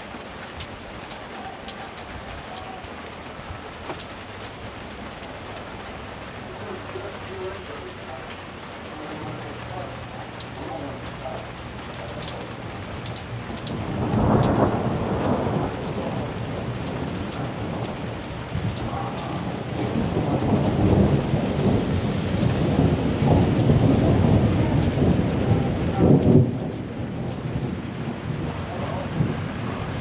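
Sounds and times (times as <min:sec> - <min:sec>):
raindrop ticks: 0:00.0 - 0:30.0
steady rain hiss: 0:00.0 - 0:30.0
thunder rolling: 0:09.1 - 0:30.0.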